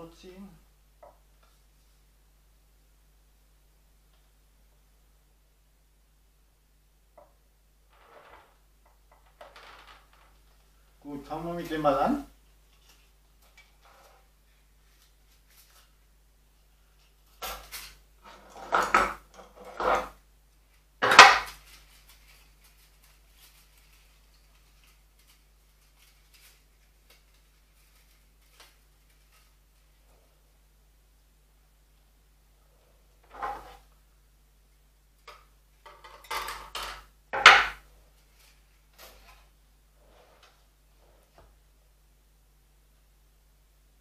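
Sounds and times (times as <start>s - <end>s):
wire coil handling: 16.9s - 30.0s.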